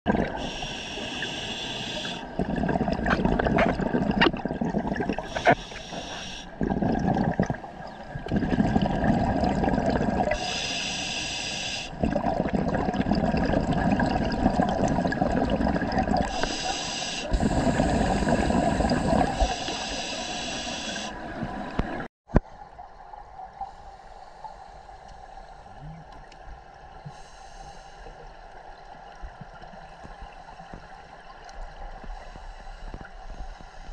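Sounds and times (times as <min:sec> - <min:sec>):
bubbling exhalation: 0:00.1 - 0:00.6, 0:02.2 - 0:10.5, 0:11.9 - 0:16.5, 0:17.3 - 0:22.1
quiet underwater hiss: 0:00.2 - 0:33.9
regulator inhale hiss: 0:00.4 - 0:02.4, 0:05.2 - 0:06.6, 0:10.4 - 0:12.0, 0:16.3 - 0:21.2, 0:23.6 - 0:25.8, 0:27.0 - 0:28.3, 0:32.1 - 0:33.9.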